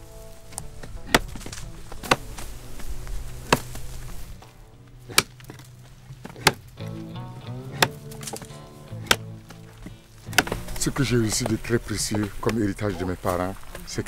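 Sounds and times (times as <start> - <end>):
hoe chopping into ground: 0.4 - 13.4.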